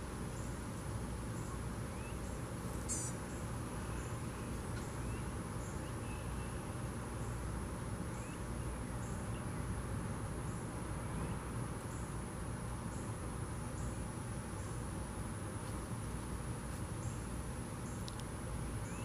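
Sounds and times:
insects droning: 0:00.0 - 0:19.0
short insect chirp: 0:01.3 - 0:07.5.

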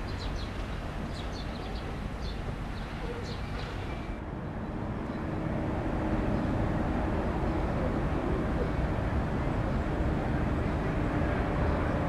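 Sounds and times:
small birds chirping: 0:00.0 - 0:04.2
steady outdoor rumble: 0:00.0 - 0:12.0.

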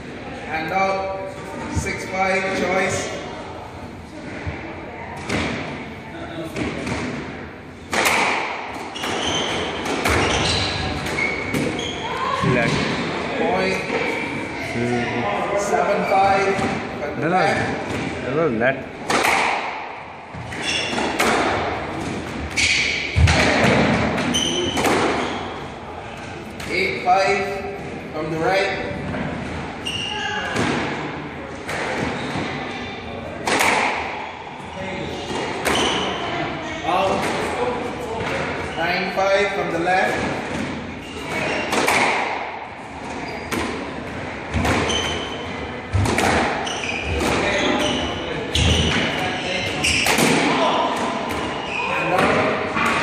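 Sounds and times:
squash ball hits: 0:06.5 - 0:11.8, 0:19.0 - 0:25.4, 0:33.4 - 0:34.2, 0:40.0 - 0:45.3, 0:45.9 - 0:53.0
shoes squeaking on wooden floor: 0:08.8 - 0:12.7, 0:20.4 - 0:21.2, 0:43.0 - 0:43.6, 0:44.6 - 0:45.5, 0:46.6 - 0:50.8, 0:51.4 - 0:52.5.

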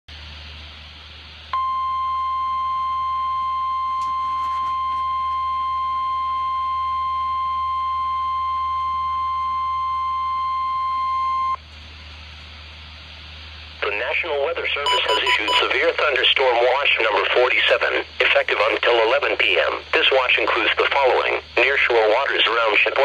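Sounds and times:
radio hiss: 0:12.0 - 0:23.0
high-pitched alarm tone: 0:14.8 - 0:15.8.

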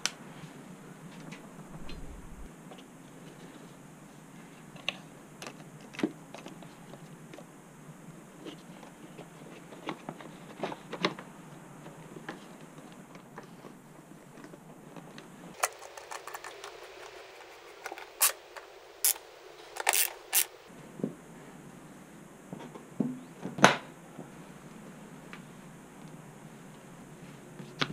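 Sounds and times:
hand tools and metal parts clicking: 0:15.6 - 0:19.2, 0:19.8 - 0:20.6.

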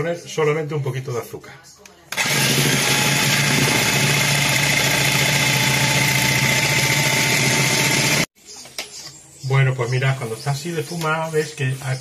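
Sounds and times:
electric mixer whipping cream: 0:02.2 - 0:08.3.

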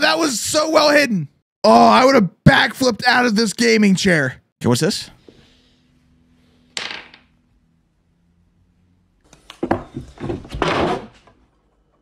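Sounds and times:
sharp knocks and clattering: 0:09.4 - 0:12.0
thud: 0:09.6 - 0:11.3.

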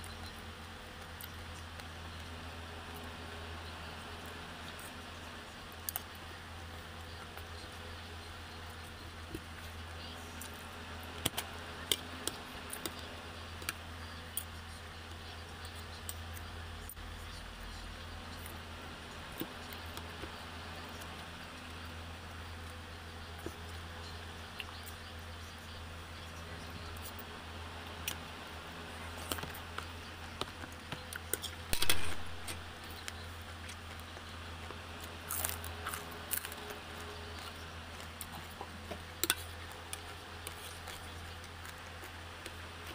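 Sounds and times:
steady low hum: 0:00.0 - 0:42.9
chewing crackle: 0:26.8 - 0:42.9.

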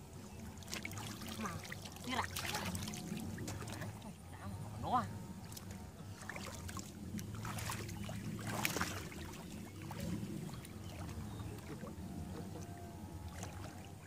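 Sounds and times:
hands splashing in muddy water: 0:06.2 - 0:10.1.

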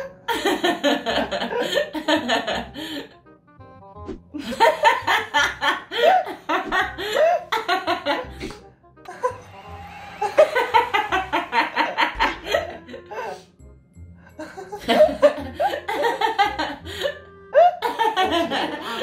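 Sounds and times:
women laughing hard: 0:00.0 - 0:03.0, 0:04.4 - 0:08.4, 0:09.1 - 0:13.4, 0:14.4 - 0:19.0
background music: 0:00.0 - 0:19.0.

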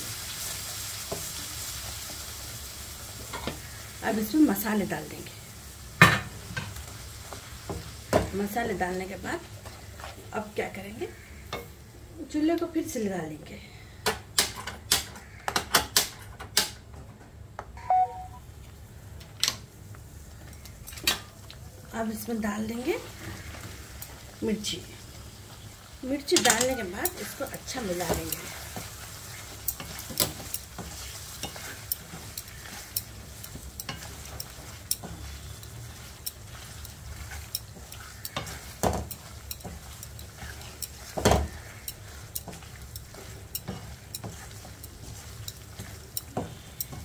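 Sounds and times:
oil sizzling in a pan: 0:00.0 - 0:13.1, 0:17.8 - 0:47.0
short beep: 0:17.8 - 0:18.4
spatula scraping and tapping pan: 0:26.1 - 0:47.0.

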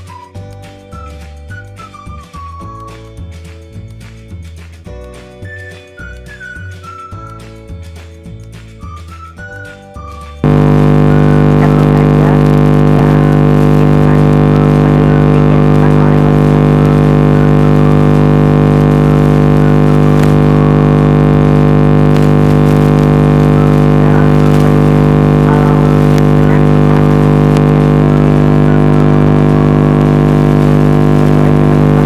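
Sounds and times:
loud electronic buzz: 0:10.4 - 0:32.0.

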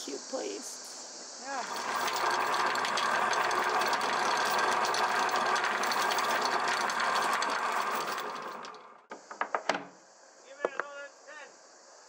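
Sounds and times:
diesel engine clattering: 0:01.6 - 0:09.0.

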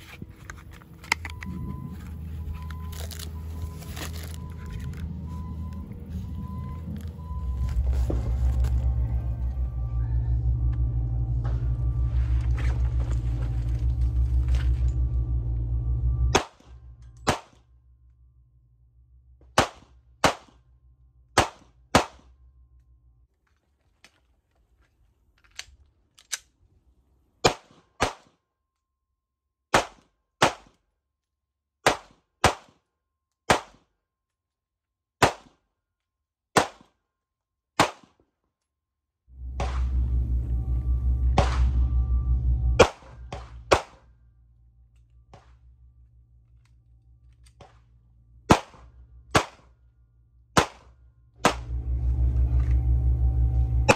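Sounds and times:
pistol shots: 0:48.5 - 0:49.7.

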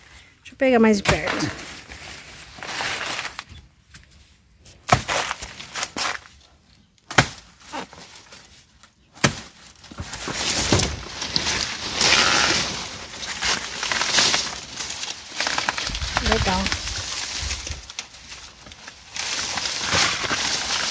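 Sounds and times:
rustling: 0:01.0 - 0:06.4, 0:07.6 - 0:20.9
cutting tool chopping plants: 0:04.8 - 0:06.2, 0:07.1 - 0:07.9.

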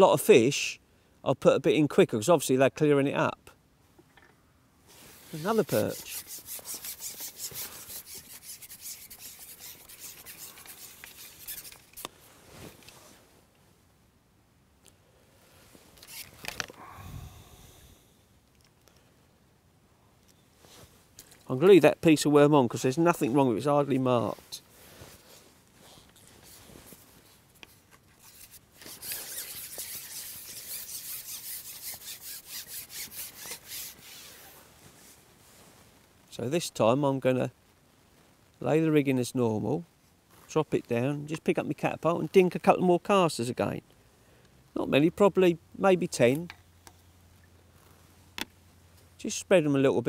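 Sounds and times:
fishing pole rubbing and rasping: 0:05.0 - 0:13.2, 0:16.0 - 0:16.8, 0:24.5 - 0:34.6.

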